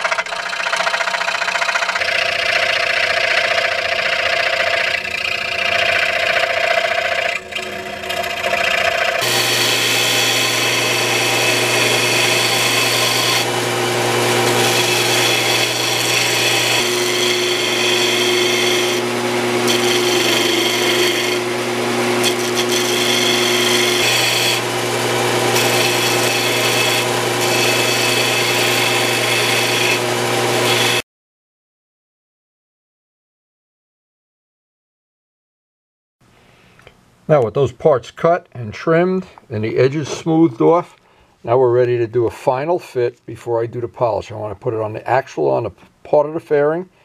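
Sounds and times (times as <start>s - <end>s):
sander grinding metal: 0.0s - 31.0s.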